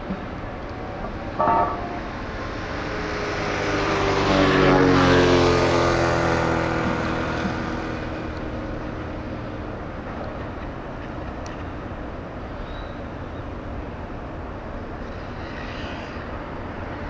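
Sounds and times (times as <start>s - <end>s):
vehicle engine passing by: 1.0s - 9.5s.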